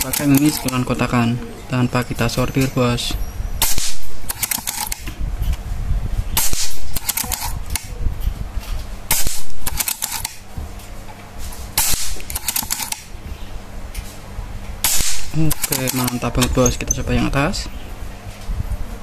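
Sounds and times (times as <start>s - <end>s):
air rifle shots: 3.6s - 5.1s, 6.4s - 8.0s, 9.1s - 10.4s, 11.8s - 13.2s, 14.8s - 16.6s.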